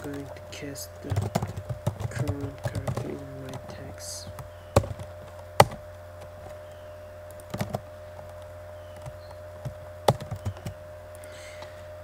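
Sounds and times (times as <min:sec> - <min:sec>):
low electrical hum: 0:00.0 - 0:12.0
keyboard keys clicking: 0:01.1 - 0:05.8, 0:07.3 - 0:11.2.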